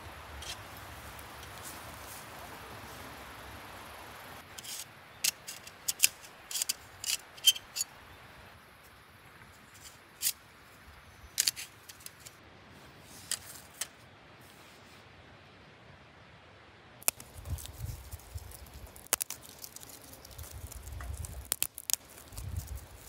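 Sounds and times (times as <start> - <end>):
faint steady background noise: 0.0 - 23.0.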